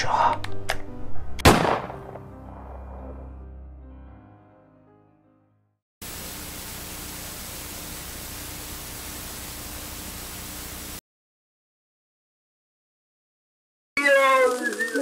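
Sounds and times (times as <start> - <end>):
tv static hiss: 6.0 - 11.0
faint steady hum: 6.1 - 11.0.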